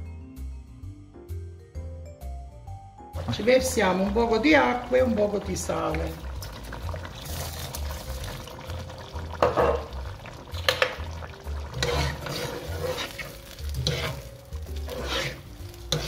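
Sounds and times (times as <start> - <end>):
sauce sizzling: 3.2 - 16.0
spoon scraping a pot: 11.6 - 16.0.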